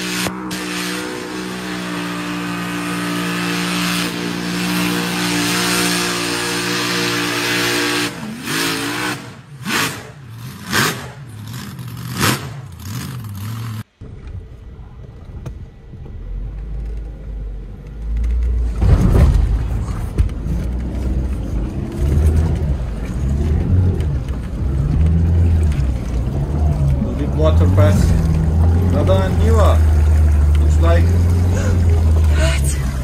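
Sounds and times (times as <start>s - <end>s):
pickup truck engine revving: 0.0s - 13.9s, 21.1s - 33.0s
tyres churning through mud: 0.0s - 13.9s, 18.4s - 33.0s.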